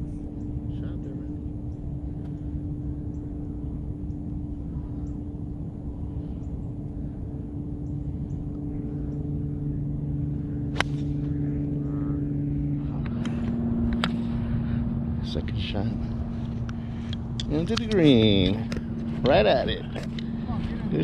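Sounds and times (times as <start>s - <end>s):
steady low hum: 0.0s - 21.0s
golf club striking ball: 10.7s - 11.4s.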